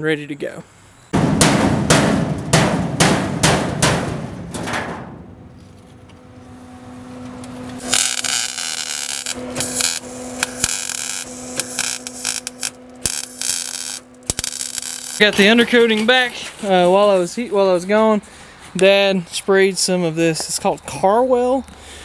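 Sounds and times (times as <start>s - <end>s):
rhythmic drum beats: 1.2s - 4.9s
welding arc crackling: 5.6s - 16.0s.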